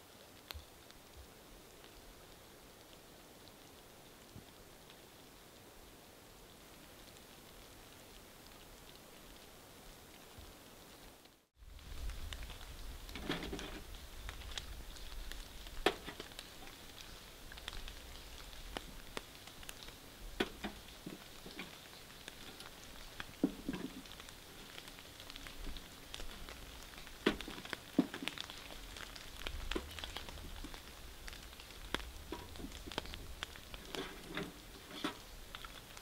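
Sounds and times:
faint hiss of rain: 0:00.0 - 0:36.0
raindrops tapping on surface: 0:11.2 - 0:36.0.

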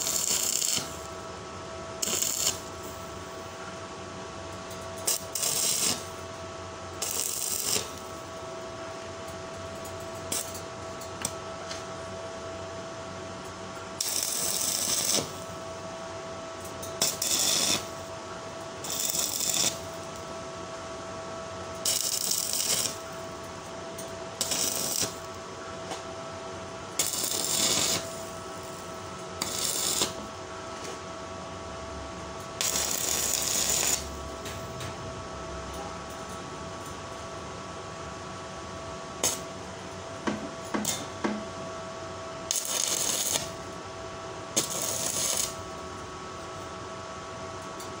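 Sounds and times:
welding arc crackling and hissing: 0:00.0 - 0:03.4, 0:04.9 - 0:08.4, 0:10.0 - 0:11.9, 0:14.0 - 0:15.8, 0:16.6 - 0:20.8, 0:21.5 - 0:23.6, 0:24.3 - 0:25.5, 0:26.6 - 0:31.1, 0:32.4 - 0:34.7, 0:39.2 - 0:39.5, 0:40.7 - 0:41.4, 0:42.4 - 0:43.8, 0:44.4 - 0:46.0
steady whine: 0:00.0 - 0:48.0.

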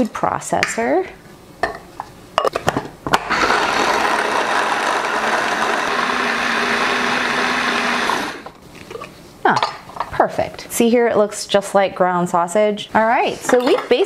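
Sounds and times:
electric food chopper running: 0:03.1 - 0:08.5.

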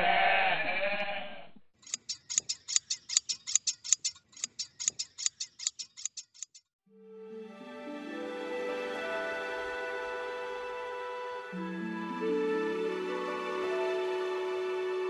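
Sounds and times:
hand shears snipping: 0:01.8 - 0:06.6
music: 0:06.9 - 0:15.0.

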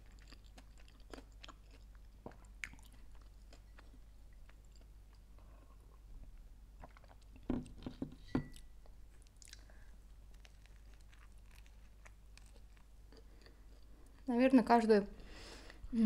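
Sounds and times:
quiet chewing: 0:00.0 - 0:06.1, 0:06.8 - 0:14.3
glass set down clinking: 0:08.0 - 0:08.6.

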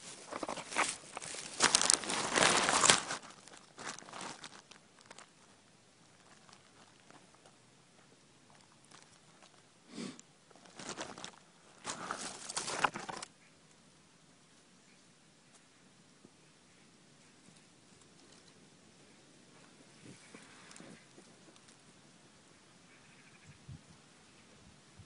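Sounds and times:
cat rustling and scrabbling: 0:00.0 - 0:05.2.

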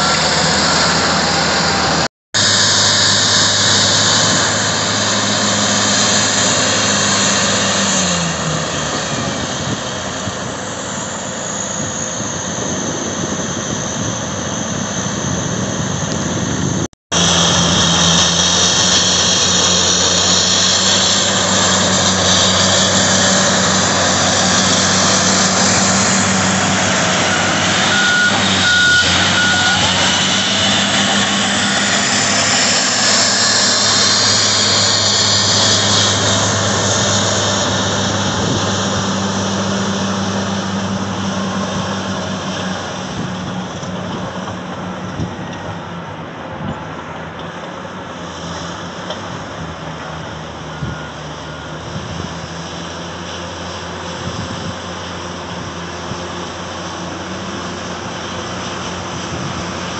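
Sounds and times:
bulldozer diesel engine: 0:00.0 - 0:59.9
short high tone: 0:21.6 - 0:38.3.

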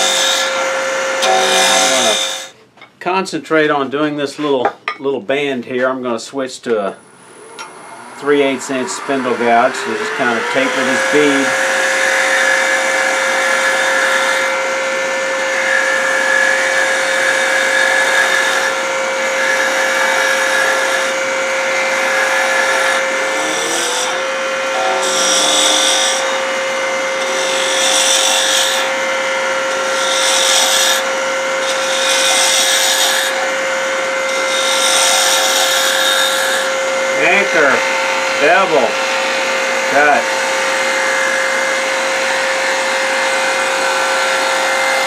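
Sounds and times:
wood lathe motor whine: 0:00.0 - 0:02.6, 0:07.0 - 0:45.0
gouge cutting wood hiss: 0:27.2 - 0:29.0, 0:29.7 - 0:33.5, 0:34.3 - 0:37.6.

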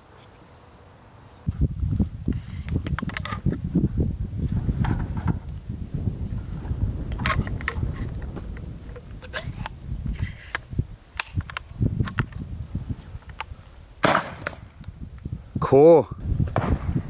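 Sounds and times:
wind on microphone: 0:01.4 - 0:17.0
launcher firing report: 0:14.0 - 0:14.7, 0:16.5 - 0:17.0.

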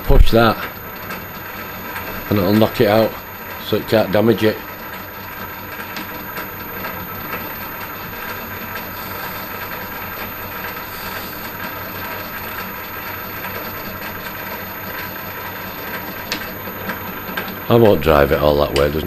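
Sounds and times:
lathe rattling whirr: 0:00.0 - 0:19.0.

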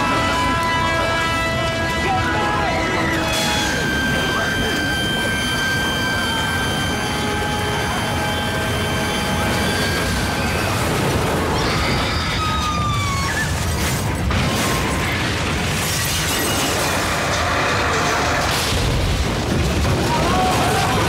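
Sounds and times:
heavy continuous rumble: 0:00.0 - 0:21.0
high falling screeches: 0:02.4 - 0:15.2.

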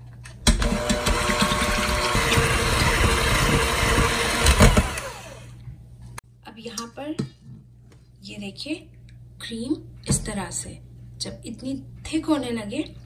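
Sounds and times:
electric hand mixer whipping cream: 0:00.5 - 0:05.6.

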